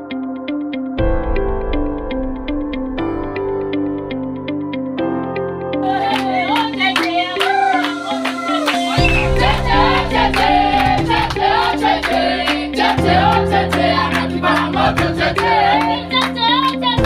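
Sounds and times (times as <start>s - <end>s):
song with voices singing over beat: 5.8s - 17.0s.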